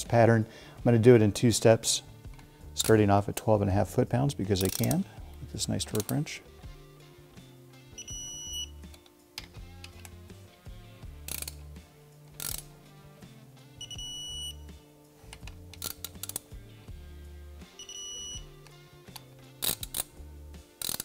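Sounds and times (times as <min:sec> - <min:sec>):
wrench clicks and knocks: 0:15.4 - 0:16.5, 0:20.8 - 0:21.0.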